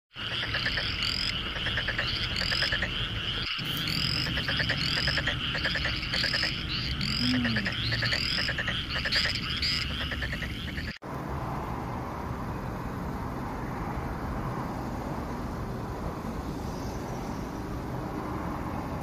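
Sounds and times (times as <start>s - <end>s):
frogs chirping and trilling: 0.1s - 11.0s.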